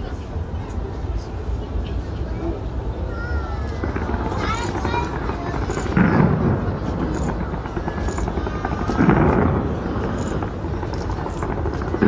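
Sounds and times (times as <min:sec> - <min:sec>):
people talking faintly: 0:00.0 - 0:12.0
distant fireworks rumble: 0:00.4 - 0:12.0
fireworks bangs: 0:03.7 - 0:12.0.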